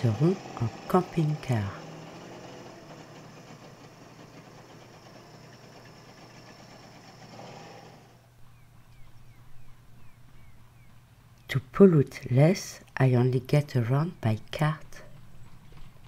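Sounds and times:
van engine running: 0.0s - 8.6s.

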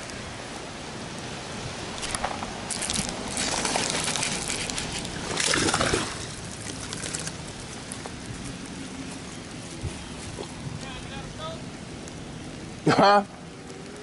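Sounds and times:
fish splashing and thrashing in water: 1.9s - 8.2s.

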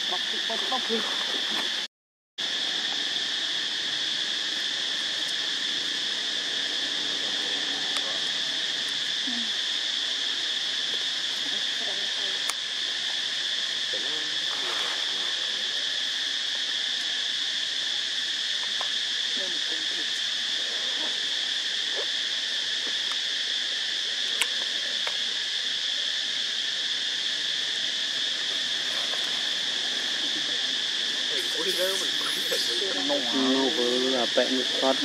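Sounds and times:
high-pitched insect chorus: 0.0s - 35.0s.

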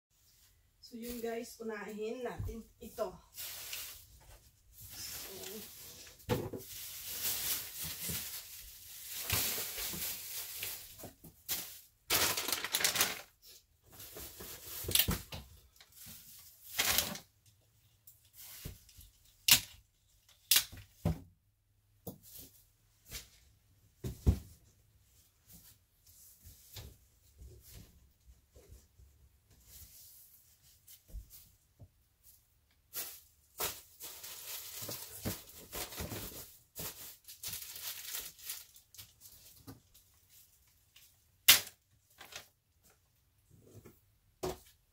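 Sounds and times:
plastic bags rustling: 2.9s - 17.3s, 32.8s - 42.6s.

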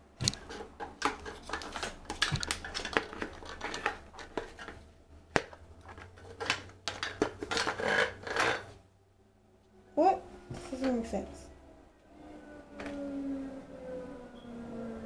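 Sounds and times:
plastic parts clicking and knocking: 0.2s - 8.7s.

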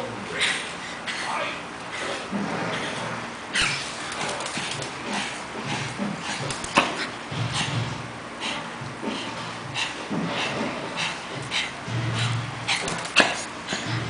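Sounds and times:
dogs play-fighting: 0.0s - 14.0s.

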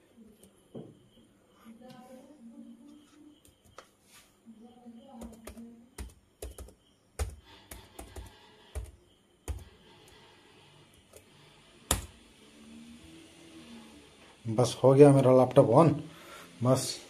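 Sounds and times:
laptop keyboard keys clicking: 5.2s - 9.8s.

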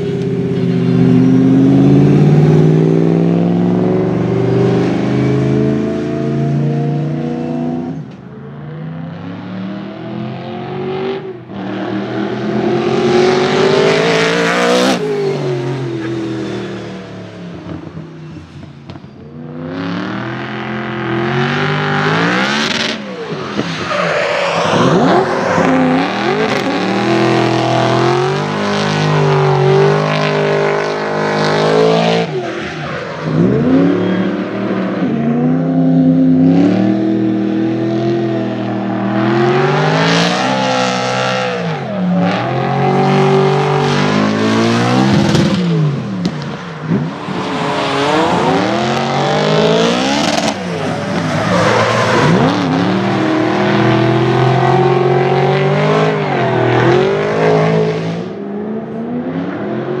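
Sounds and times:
car engine revving: 0.0s - 60.0s
tyre squeal: 23.1s - 27.1s.

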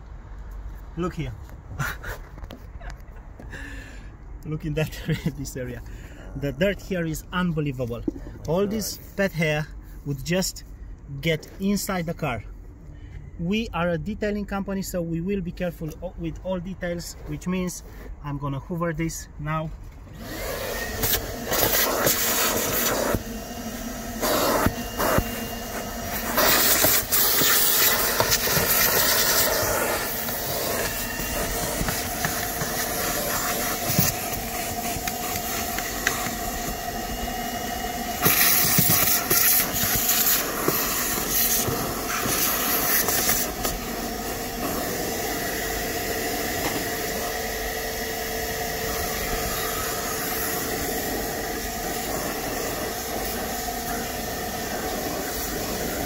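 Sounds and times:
vacuum cleaner sucking carpet: 20.1s - 56.0s.

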